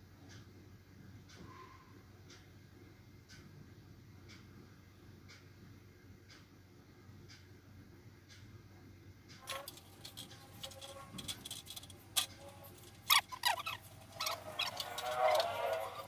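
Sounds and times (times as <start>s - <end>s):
metal casing knocks and clatter: 9.4s - 16.0s
wavering pitched squeak: 9.5s - 16.0s.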